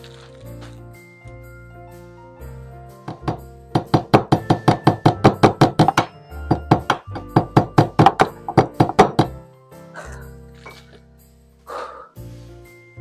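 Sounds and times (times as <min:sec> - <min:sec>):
background music: 0:00.0 - 0:13.0
hammering a nail: 0:03.1 - 0:09.4.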